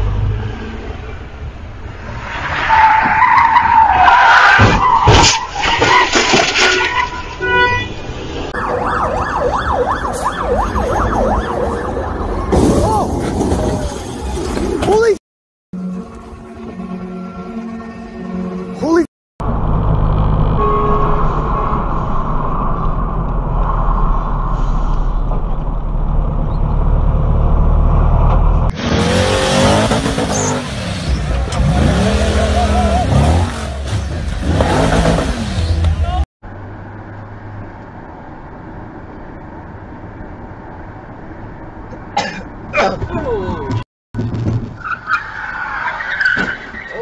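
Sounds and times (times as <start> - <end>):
road vehicle engines running: 19.4 - 47.0.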